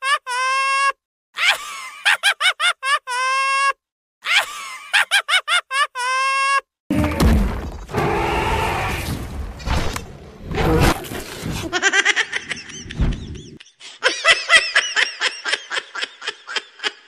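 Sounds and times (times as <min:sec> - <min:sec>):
high-pitched snickering laugh: 0:00.0 - 0:06.6, 0:11.6 - 0:17.0
noisy crash: 0:06.9 - 0:11.7.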